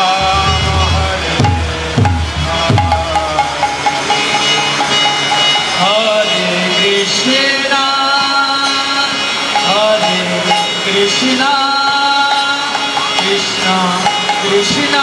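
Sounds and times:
harmonium chords: 0.0s - 15.0s
voices singing devotional song: 0.0s - 15.0s.

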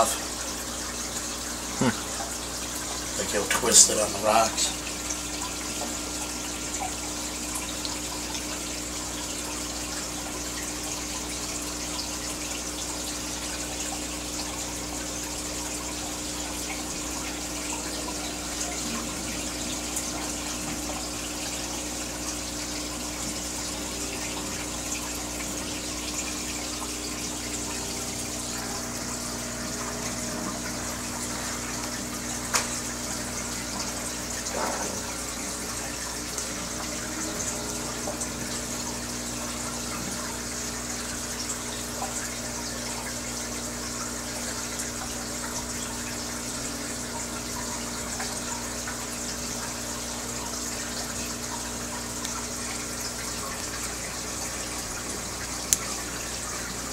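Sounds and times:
aquarium water bubbling: 0.0s - 56.9s.

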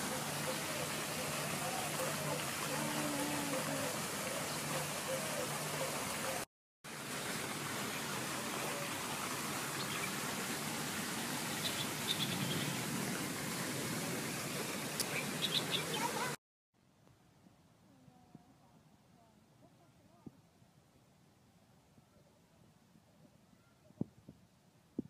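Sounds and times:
water rushing in a stream: 0.0s - 16.4s.

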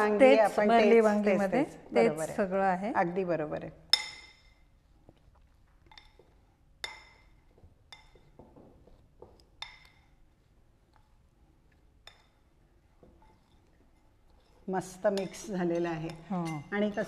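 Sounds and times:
spoon clinking against a bowl: 3.9s - 4.7s, 5.8s - 8.4s, 9.4s - 10.2s, 12.0s - 17.0s.

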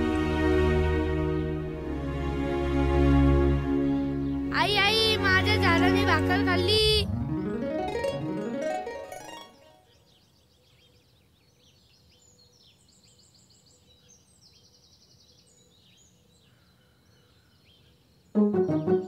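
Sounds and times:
birds chirping and trilling: 9.2s - 18.3s.

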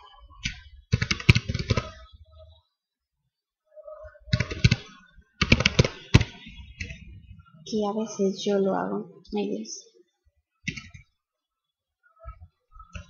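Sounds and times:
typing on computer keyboard: 0.4s - 2.0s, 4.3s - 7.0s.

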